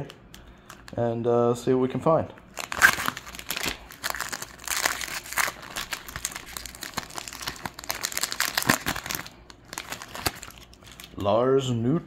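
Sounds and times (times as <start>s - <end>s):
foil wrapper crinkling and tearing: 2.5s - 11.2s.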